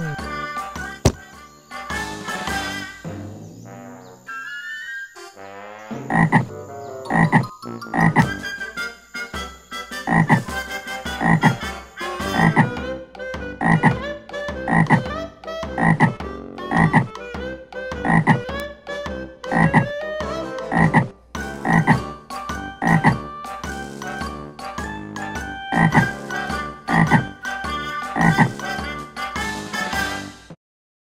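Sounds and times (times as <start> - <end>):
frog croaking: 6.0 - 8.3, 10.0 - 10.5, 11.2 - 11.6, 12.3 - 12.7, 13.6 - 14.0, 14.6 - 15.1, 15.8 - 17.1, 18.0 - 18.5, 19.5 - 19.9, 20.6 - 22.1, 22.8 - 23.2, 25.7 - 26.1, 26.9 - 27.3, 28.2 - 28.6.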